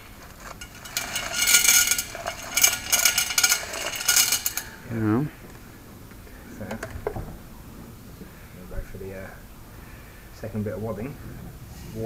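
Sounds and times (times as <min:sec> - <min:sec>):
gravel rattling down metal tube: 0:00.0 - 0:05.0.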